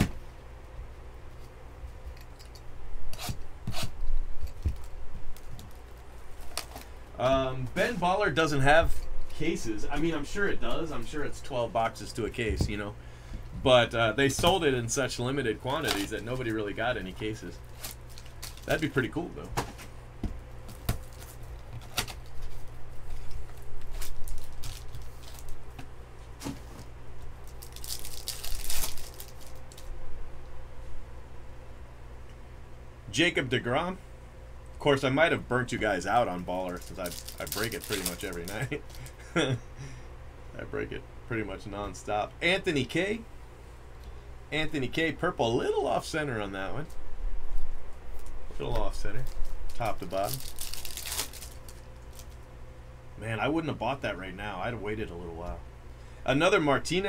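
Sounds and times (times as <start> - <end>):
plastic wrap ripping: 15.7 - 19.1, 20.7 - 25.6, 27.4 - 29.9, 36.4 - 39.0, 48.2 - 52.4.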